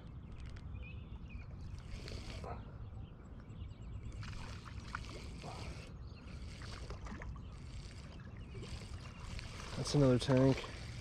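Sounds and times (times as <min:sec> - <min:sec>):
water splashing and trickling: 0:04.1 - 0:11.0.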